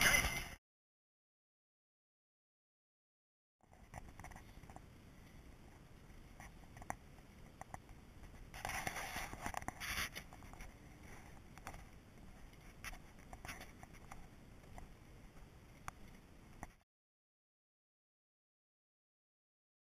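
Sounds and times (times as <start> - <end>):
rustling and scraping: 8.2 - 14.2.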